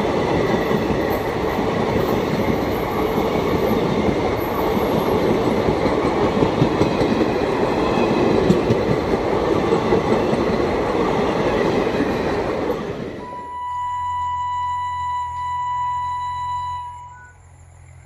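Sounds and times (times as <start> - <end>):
clickety-clack of rail joints: 0.0 - 13.2
train rushing past: 0.0 - 13.6
steady electronic tone: 13.2 - 18.0.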